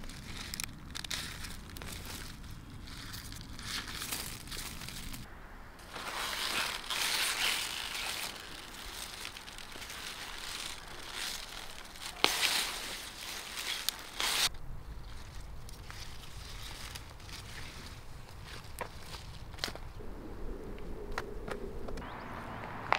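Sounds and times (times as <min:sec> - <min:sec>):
stalks snapping: 0:00.0 - 0:05.2, 0:05.9 - 0:14.6
leaves rustling and crunching: 0:00.0 - 0:20.0.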